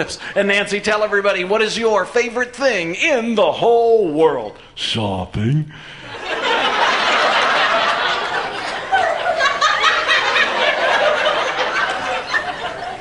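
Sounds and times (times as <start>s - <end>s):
audience laughing: 6.0s - 13.0s.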